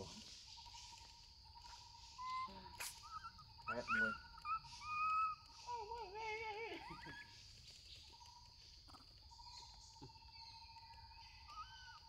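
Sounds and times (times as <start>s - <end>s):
monkey squealing call: 2.2s - 5.8s.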